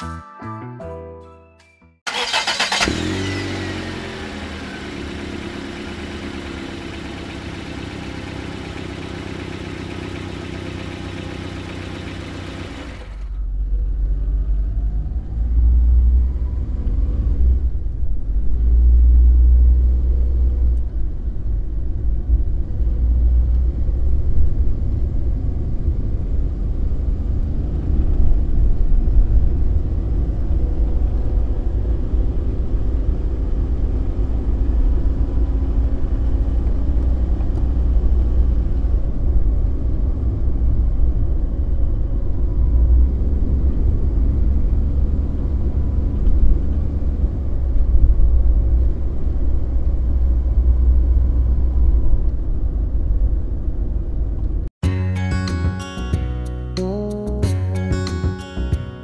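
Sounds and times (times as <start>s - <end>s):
vehicle engine starting and running: 2.1s - 54.7s
deep rumble of moving vehicle: 2.1s - 54.8s.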